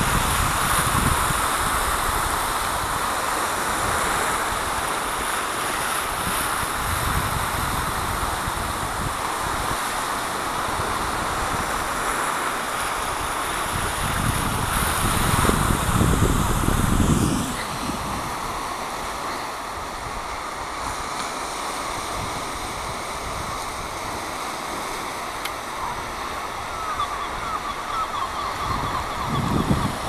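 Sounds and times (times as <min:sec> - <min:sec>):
small waves washing onto shore: 0:00.0 - 0:30.0
wind on microphone: 0:00.0 - 0:30.0
low rush: 0:15.4 - 0:20.3.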